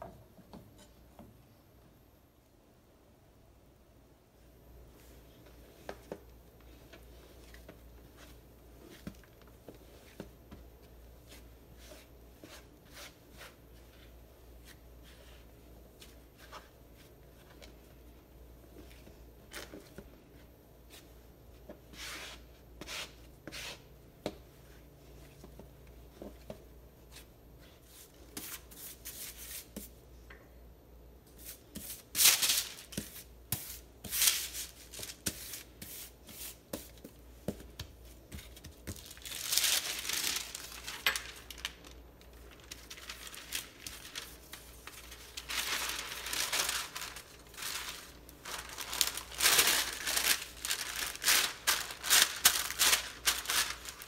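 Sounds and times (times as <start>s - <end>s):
hands kneading dough: 4.8s - 30.1s, 31.3s - 54.0s
wax paper crinkling: 38.4s - 54.0s.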